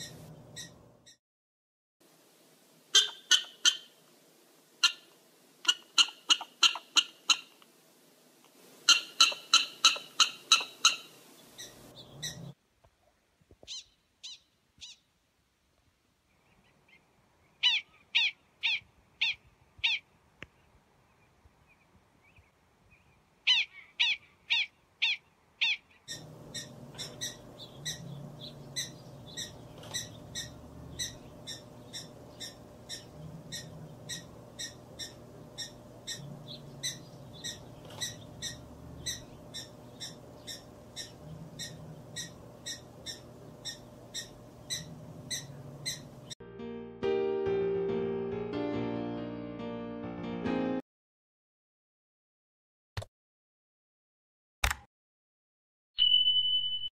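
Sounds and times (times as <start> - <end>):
background noise: 0.0 - 1.2, 2.0 - 26.9
prairie dog barking: 2.9 - 3.9, 4.8 - 5.1, 8.9 - 12.5, 23.5 - 46.1.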